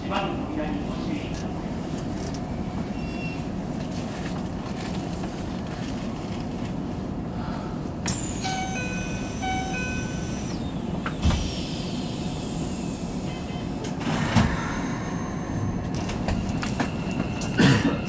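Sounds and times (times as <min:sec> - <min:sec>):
falling electronic tone: 0:08.1 - 0:10.8
electronic chime tones: 0:08.2 - 0:10.6
loud clunk of train: 0:11.0 - 0:11.8, 0:13.8 - 0:18.0.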